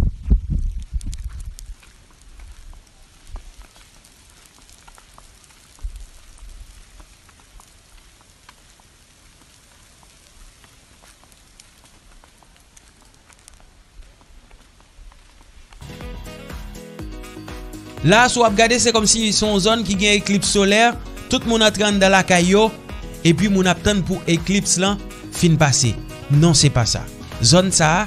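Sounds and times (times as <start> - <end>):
faint crackling hiss: 0.0 - 28.0
small ticks: 0.6 - 15.8.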